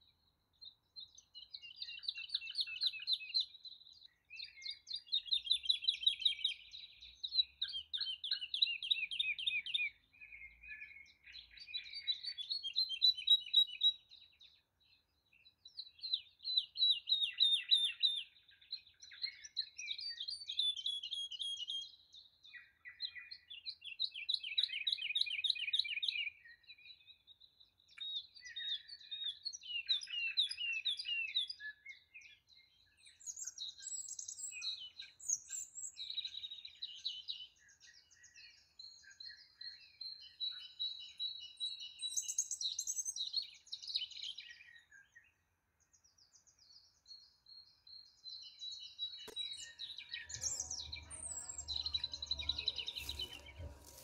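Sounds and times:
songbirds trilling: 48.0 - 54.0.

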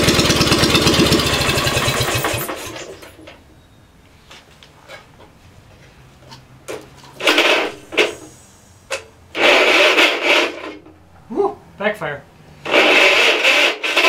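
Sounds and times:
rasping hissing engine bursts: 0.0 - 3.2, 7.2 - 10.9, 12.4 - 14.0
engine running with low hum: 0.0 - 14.0.

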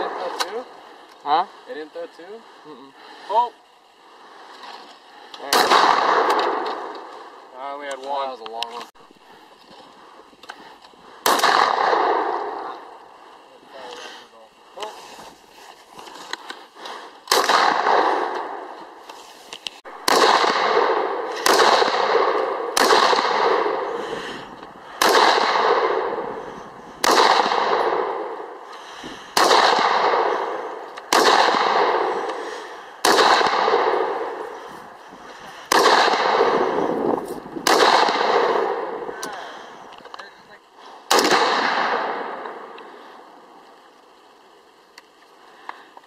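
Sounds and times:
rifle shots echoing: 0.0 - 0.8, 5.4 - 8.3, 11.1 - 13.0, 17.2 - 19.1, 19.9 - 40.2, 41.0 - 43.3.

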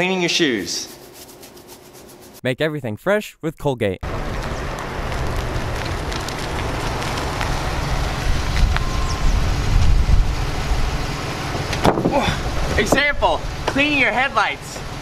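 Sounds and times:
wind buffeting microphone: 4.3 - 11.2.

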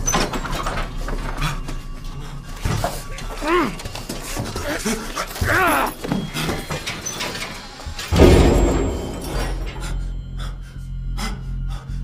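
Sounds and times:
strained vocal cries: 3.2 - 7.1
heavy iron door slamming: 5.6 - 10.3.

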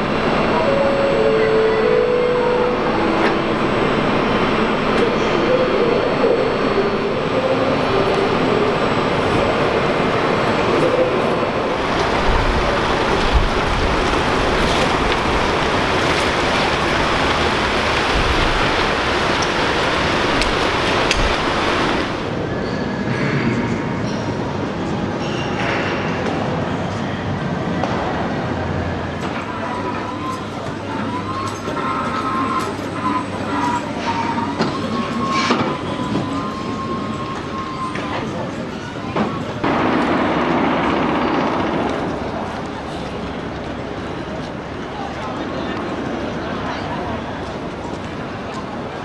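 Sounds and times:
low traffic rumble: 0.0 - 22.5
crowd hubbub: 0.0 - 49.0
tyres hissing on wet road: 11.7 - 22.3.

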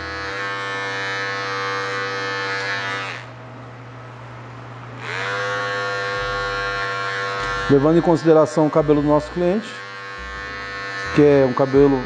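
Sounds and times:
electric hair clipper buzzing: 0.0 - 3.4, 5.0 - 12.0.

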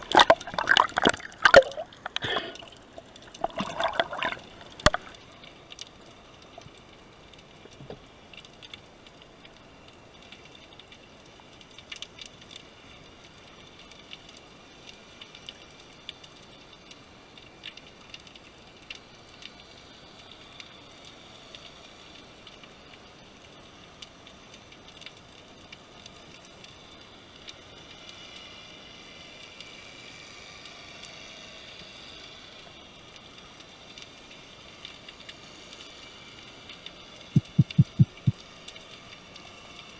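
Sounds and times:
faint underwater hiss: 0.0 - 11.5, 25.5 - 39.9.

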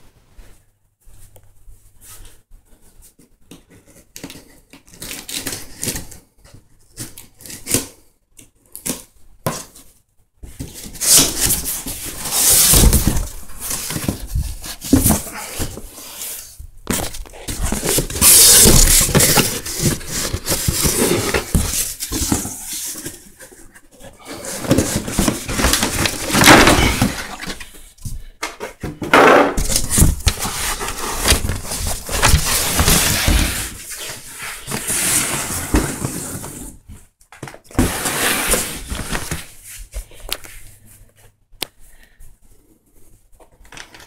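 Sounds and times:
packing tape tearing off cardboard: 10.8 - 23.2, 29.2 - 36.4.

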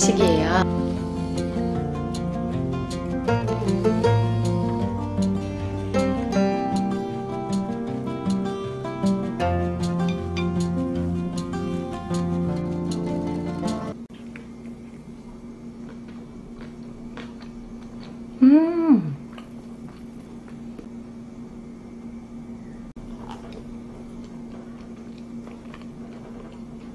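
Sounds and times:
background music: 0.0 - 14.0
steady low hum: 0.0 - 26.9.

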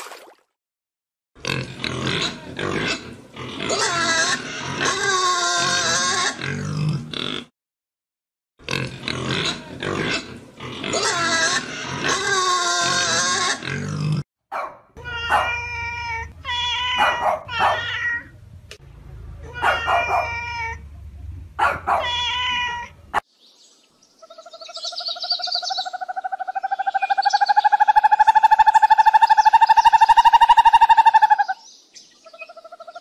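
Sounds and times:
pigs squealing: 1.4 - 7.5, 8.7 - 14.2, 15.1 - 18.3, 19.4 - 20.8, 21.6 - 22.9, 25.9 - 31.6
cat meowing: 15.0 - 18.3, 19.4 - 20.8, 21.9 - 23.0
trilling bird call: 24.1 - 33.0.

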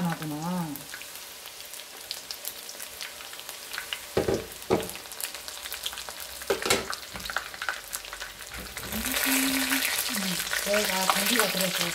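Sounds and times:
flowers deep-frying in oil: 0.0 - 11.9
louder knocks: 4.2 - 5.0.

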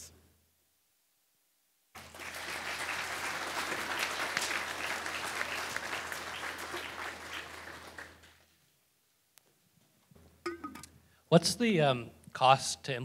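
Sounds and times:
large audience applauding: 2.0 - 8.4.

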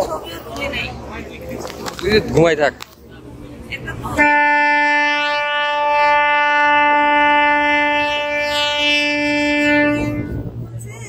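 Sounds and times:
ship horn long blast: 4.2 - 10.8.

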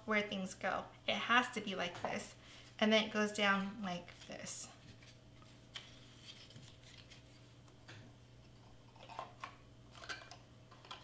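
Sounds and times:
low steady hum: 0.0 - 11.0
cardstock rustling and crackling: 4.1 - 7.4.

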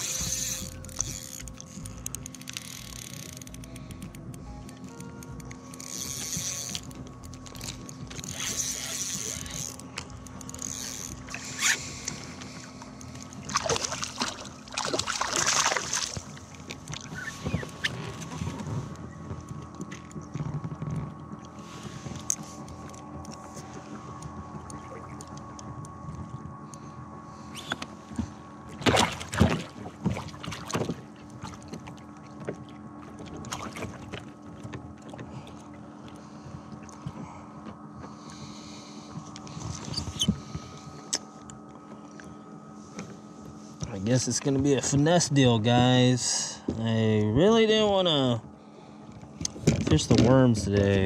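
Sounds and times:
faint held tones: 0.0 - 13.4
low steady hum: 0.0 - 51.0.

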